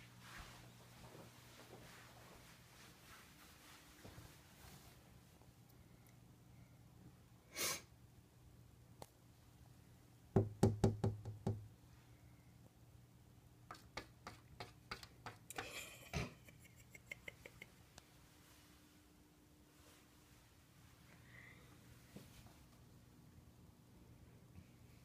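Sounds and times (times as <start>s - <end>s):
sharp knocks on window: 10.4s - 11.6s.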